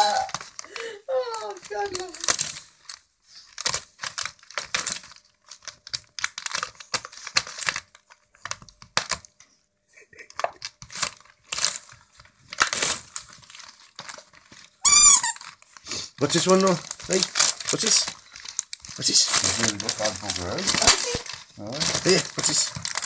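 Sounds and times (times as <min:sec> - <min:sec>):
wrapping paper crinkling and ripping: 0:00.0 - 0:09.3, 0:10.2 - 0:23.0
loud high squeak: 0:14.8 - 0:15.4.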